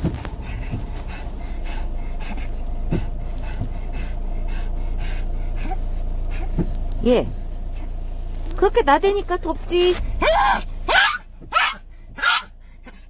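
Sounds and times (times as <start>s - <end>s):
dog panting: 0.0s - 8.0s
moving car rumble: 0.0s - 13.0s.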